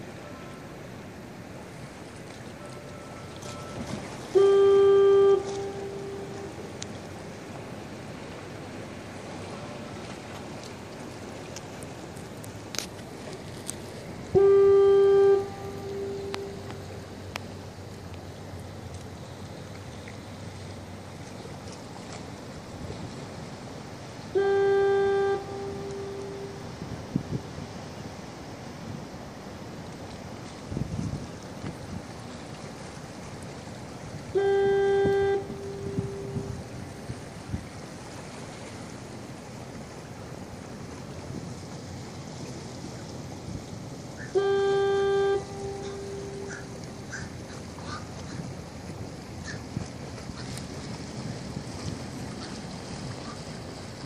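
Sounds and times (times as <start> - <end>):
steady background hiss: 0.0 - 54.0
foghorn low blast: 2.6 - 7.5, 14.2 - 17.4, 24.2 - 27.6, 34.2 - 37.7, 44.2 - 47.2.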